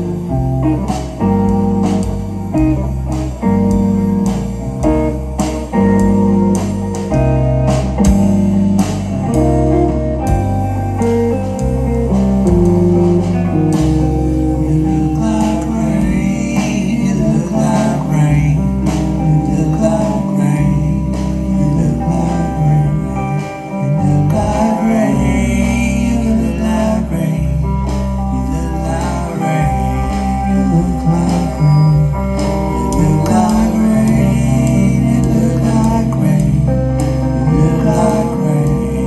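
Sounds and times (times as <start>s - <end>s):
blues-rock band playing: 0.0s - 39.0s.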